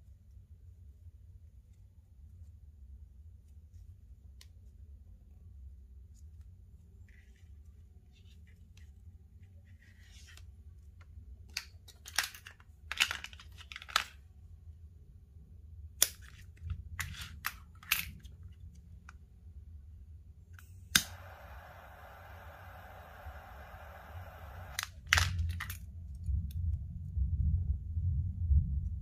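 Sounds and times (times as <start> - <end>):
lighter ignition click: 20.9 - 24.9
torch flame hissing: 21.0 - 24.8.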